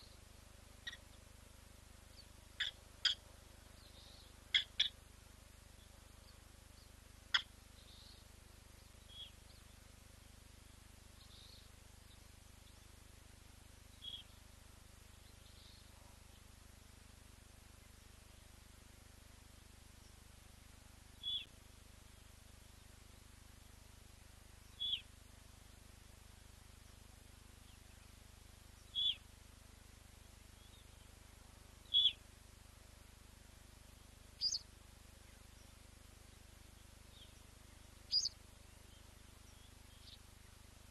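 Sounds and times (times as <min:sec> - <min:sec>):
faint background noise: 0:00.0 - 0:40.9
bird calls: 0:00.8 - 0:01.2, 0:02.1 - 0:05.0, 0:05.8 - 0:08.3, 0:09.0 - 0:09.8, 0:13.9 - 0:14.4, 0:21.2 - 0:21.5, 0:24.6 - 0:25.1, 0:28.8 - 0:29.2, 0:31.8 - 0:32.2, 0:34.4 - 0:40.9
short sharp bird calls: 0:02.6 - 0:03.2, 0:03.9 - 0:05.0, 0:24.8 - 0:25.1, 0:28.9 - 0:29.2, 0:31.9 - 0:32.2, 0:34.4 - 0:34.6, 0:38.1 - 0:38.4.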